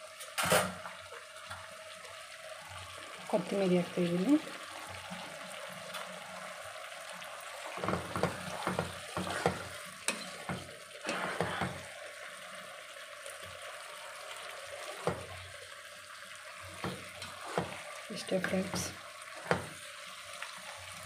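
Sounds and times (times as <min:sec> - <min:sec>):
curry simmering with sizzling hiss: 0:00.0 - 0:21.0
spatula scraping and knocking pot: 0:07.8 - 0:11.8, 0:16.8 - 0:17.8.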